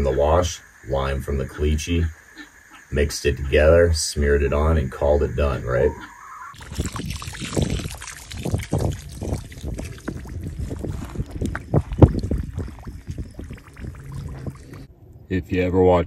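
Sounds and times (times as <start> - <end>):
water sloshing and splashing: 6.5 - 14.9.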